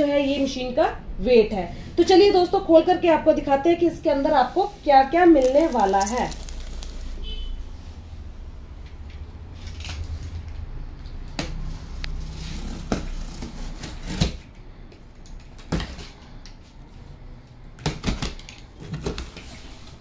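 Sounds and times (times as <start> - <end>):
cardboard box scraping: 12.2 - 14.4.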